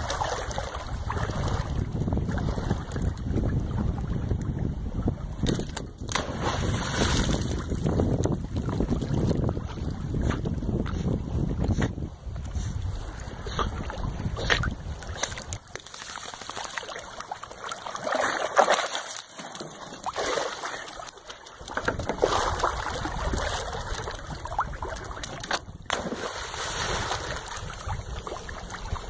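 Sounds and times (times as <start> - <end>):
wind rumbling on microphone: 0.0 - 15.8, 21.6 - 29.0
water splashing and dripping: 5.4 - 9.9, 13.8 - 29.0.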